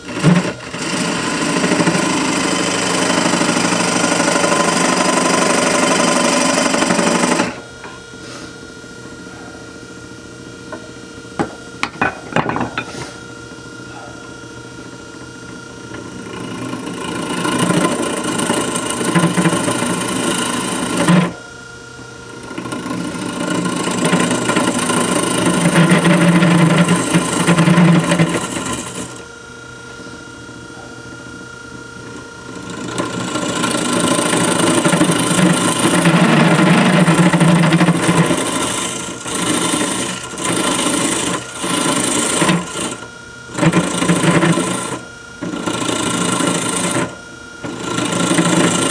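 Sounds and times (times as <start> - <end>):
gouge cutting wood on lathe: 0.0 - 7.6, 15.9 - 21.4, 22.3 - 29.2, 32.1 - 48.9
lathe running hum: 0.0 - 48.9.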